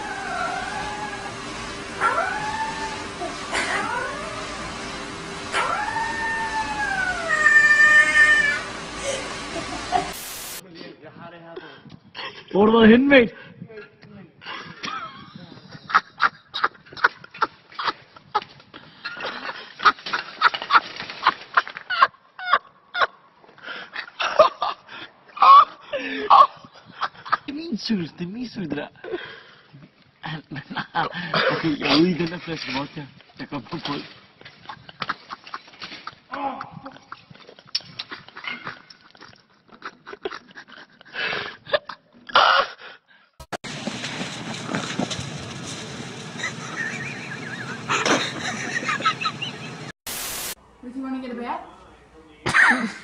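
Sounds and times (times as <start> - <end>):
person crying out: 2.0 - 4.6, 5.6 - 9.3, 36.3 - 37.0
people laughing: 9.0 - 10.2, 14.4 - 23.1, 30.2 - 31.9, 34.4 - 42.3, 46.4 - 49.9
bicycles clattering: 43.6 - 49.6.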